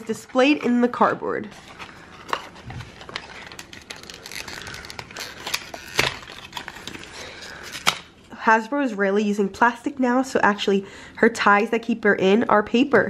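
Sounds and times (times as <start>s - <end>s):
cardboard packaging crinkling: 0.4s - 8.1s.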